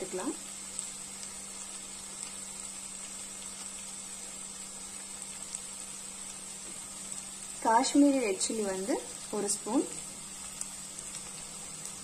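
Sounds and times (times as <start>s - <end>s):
vegetables sizzling in oil: 0.0s - 12.0s.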